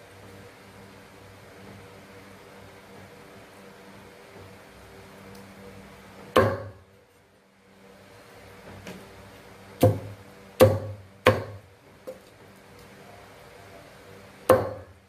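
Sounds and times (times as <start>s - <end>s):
cleaver chopping on wooden block: 6.4s - 6.8s, 9.8s - 12.2s, 14.5s - 14.9s.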